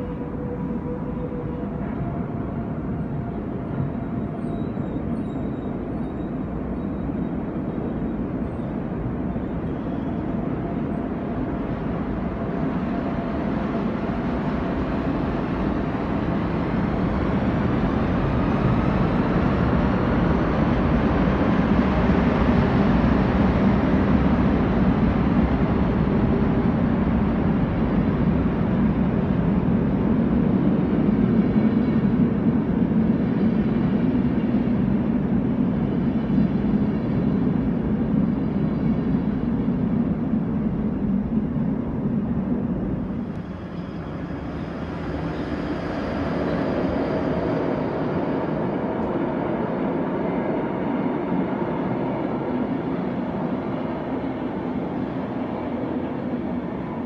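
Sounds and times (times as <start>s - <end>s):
passenger train rolling past: 0.0s - 57.0s.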